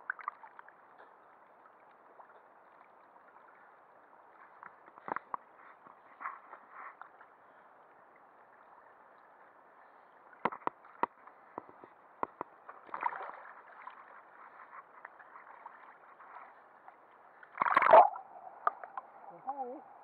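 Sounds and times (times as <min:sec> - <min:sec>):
splash: 0:00.0 - 0:01.1, 0:12.7 - 0:16.6, 0:17.5 - 0:19.7
water sloshing and gurgling: 0:00.0 - 0:20.0.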